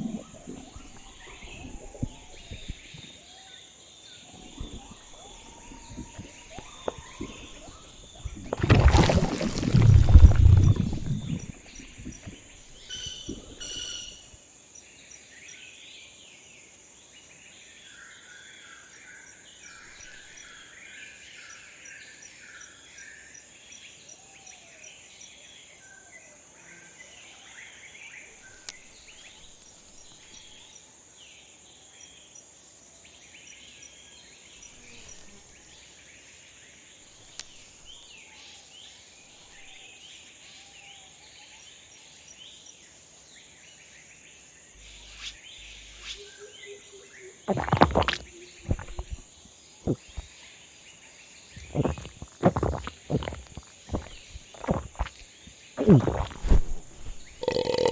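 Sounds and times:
high insect drone: 34.6s - 36.1s, 44.0s - 50.4s, 51.3s - 57.9s.

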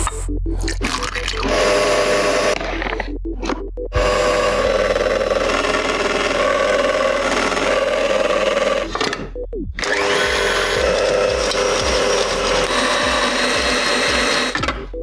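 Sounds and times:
stand mixer motor running: 1.5s - 2.6s, 4.0s - 8.9s, 9.8s - 14.6s.

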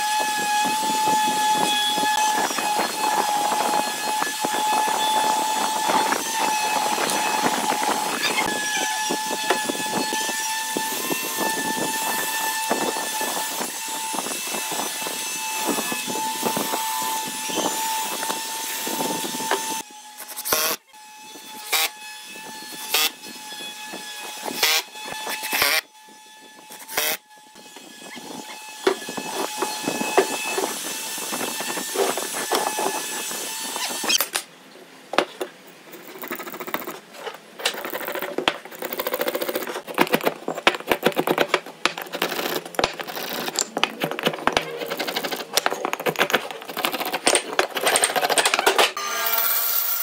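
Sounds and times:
marking gauge scratching wood: 37.6s - 48.6s.

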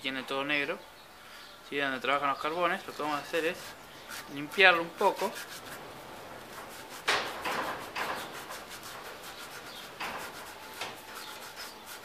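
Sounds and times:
emery cloth scraping metal: 3.2s - 12.0s.

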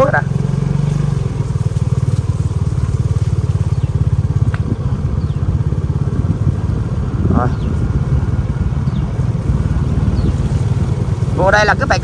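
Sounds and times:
motorcycle engine low putter: 0.0s - 12.0s.

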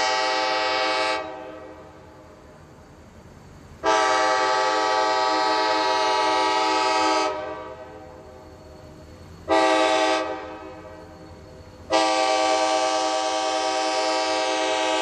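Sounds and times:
locomotive air horn blasts: 0.0s - 1.8s, 3.8s - 8.1s, 9.5s - 11.0s, 11.9s - 15.0s.

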